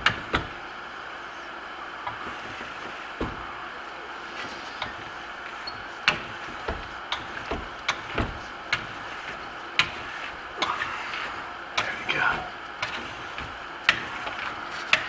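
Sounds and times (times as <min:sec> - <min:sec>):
dull knocks: 0:02.2 - 0:03.5, 0:06.1 - 0:08.8.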